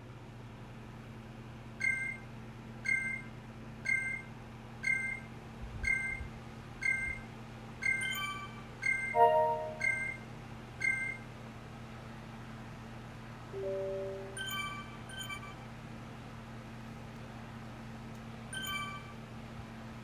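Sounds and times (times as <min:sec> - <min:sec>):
short electronic beep: 0:07.8 - 0:10.2, 0:13.6 - 0:15.5
higher electronic tones: 0:09.1 - 0:10.2, 0:13.6 - 0:14.6
low hum: 0:13.6 - 0:14.7.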